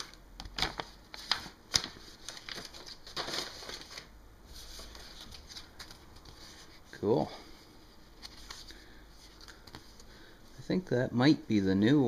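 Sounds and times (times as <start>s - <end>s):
paper rustling and crinkling: 0.0s - 7.1s, 8.0s - 10.2s.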